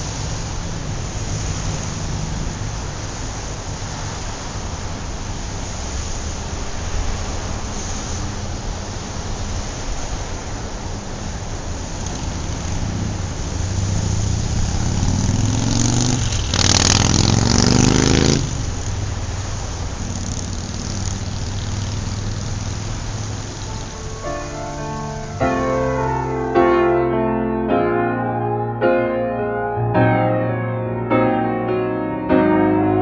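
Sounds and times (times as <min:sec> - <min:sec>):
vehicle engines running: 0:00.0 - 0:27.3
vehicle accelerating: 0:11.8 - 0:33.0.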